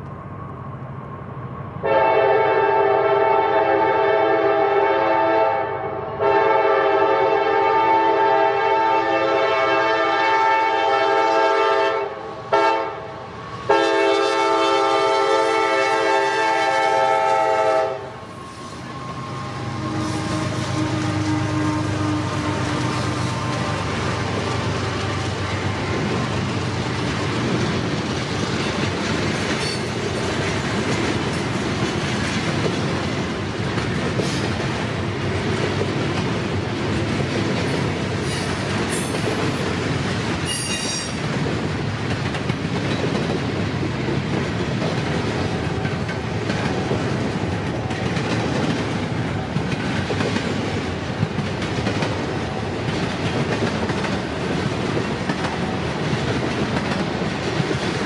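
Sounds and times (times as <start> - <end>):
freight train wheels rumbling: 0.0 - 58.0
high-pitched wheel squeal: 18.0 - 24.0, 40.5 - 41.2
clickety-clack over rail joints: 19.9 - 58.0.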